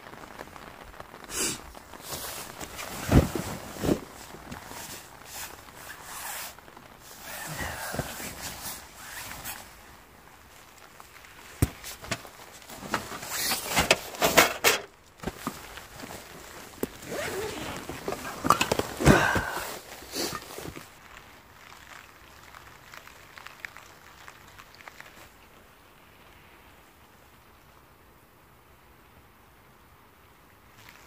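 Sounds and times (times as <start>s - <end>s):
nylon fabric rustling: 0.0s - 21.0s.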